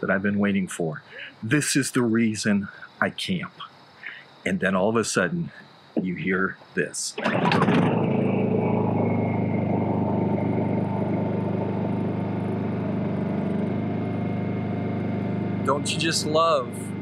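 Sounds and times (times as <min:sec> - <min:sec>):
portable generator running: 0:07.2 - 0:17.0.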